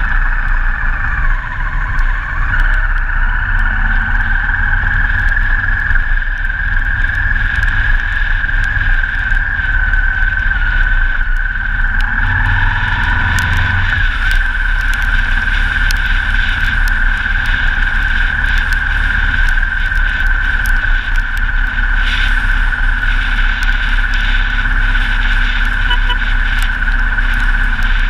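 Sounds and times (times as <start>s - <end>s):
high whine: 0.0s - 28.0s
motorcycle engine rumble: 0.0s - 28.0s
wind and road noise: 0.0s - 28.0s
small ticks: 11.3s - 21.8s.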